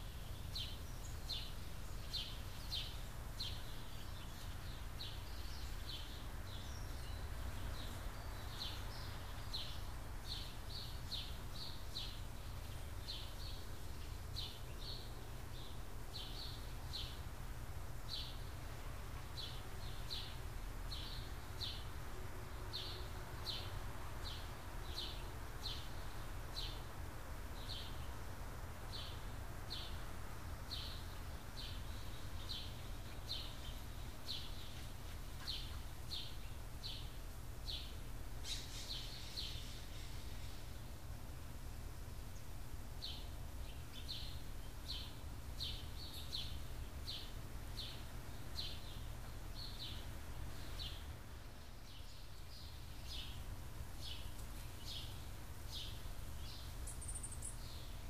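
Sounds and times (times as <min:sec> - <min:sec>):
small bird chirping: 0:00.0 - 0:17.2, 0:30.6 - 0:40.9, 0:42.3 - 0:58.0.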